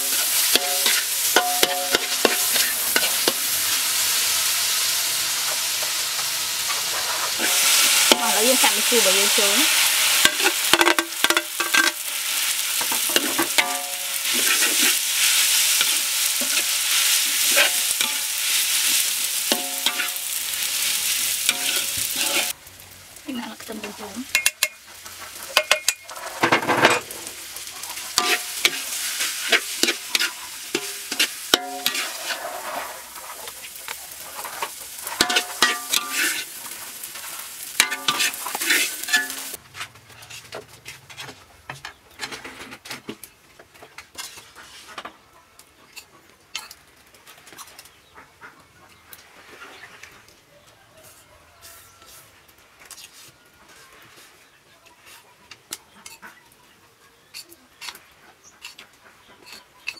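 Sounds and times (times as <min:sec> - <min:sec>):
metal spatula scraping a wok: 0:00.0 - 0:22.6, 0:23.8 - 0:43.0, 0:44.1 - 0:45.0
food sizzling in a wok: 0:00.0 - 0:39.6, 0:50.9 - 0:53.4.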